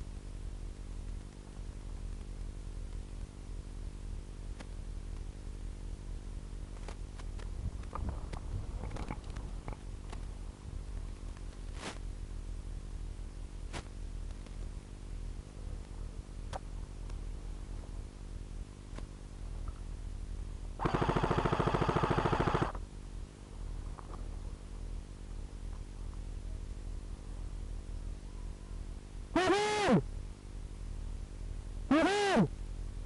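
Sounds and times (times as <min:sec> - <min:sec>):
steady low hum: 0:00.0 - 0:33.0
airsoft gun automatic burst: 0:20.8 - 0:22.8, 0:29.4 - 0:30.0, 0:31.9 - 0:32.5.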